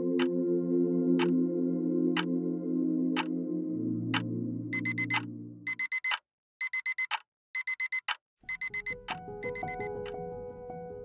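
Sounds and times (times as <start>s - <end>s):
background music: 0.0s - 5.7s, 8.6s - 11.0s
digital alarm clock beeping: 4.8s - 10.0s.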